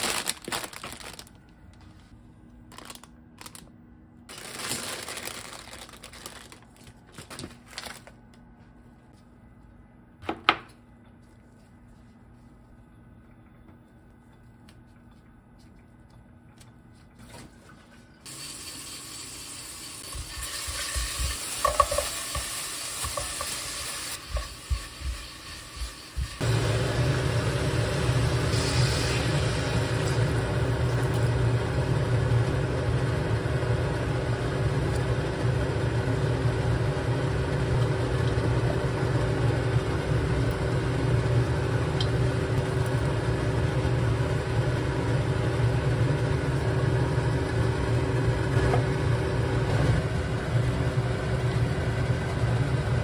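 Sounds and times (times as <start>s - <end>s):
packaging rustling and clicks: 0.0s - 1.6s, 2.7s - 3.7s, 4.3s - 8.3s
seasonings sizzling in oil: 18.3s - 30.2s
spatula stirring and knocking pot: 20.2s - 23.6s.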